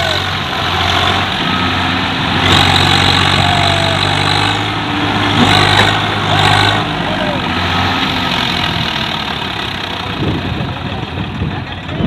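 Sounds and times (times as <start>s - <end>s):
tractor diesel engines under load: 0.0s - 12.0s.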